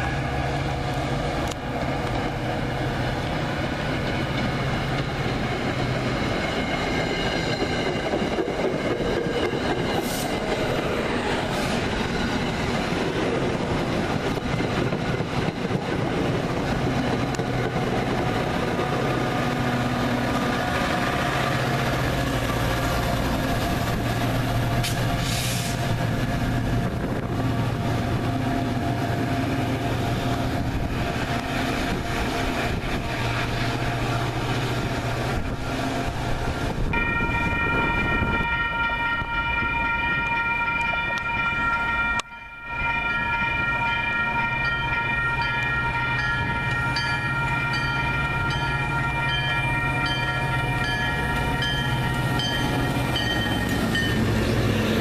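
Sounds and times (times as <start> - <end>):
train wheels on rails: 0.0 - 55.0
diesel locomotive engine running: 40.2 - 55.0.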